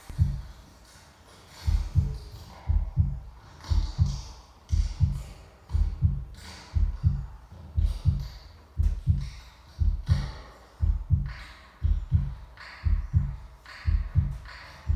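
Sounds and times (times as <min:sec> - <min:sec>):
heartbeat thumping: 0:00.0 - 0:00.5, 0:01.7 - 0:14.9.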